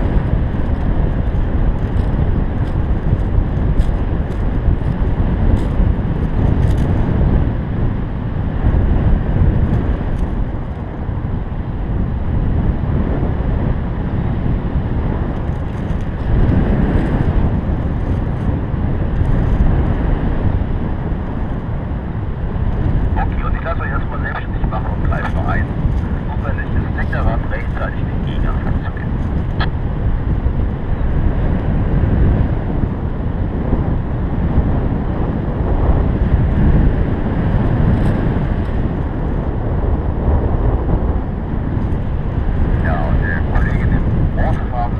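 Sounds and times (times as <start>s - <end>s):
wind rushing over microphone: 0.0s - 44.9s.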